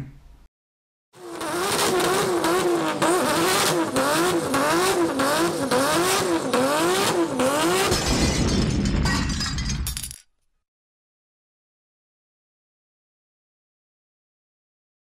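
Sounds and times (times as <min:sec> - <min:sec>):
car engine revving: 0:01.2 - 0:07.9.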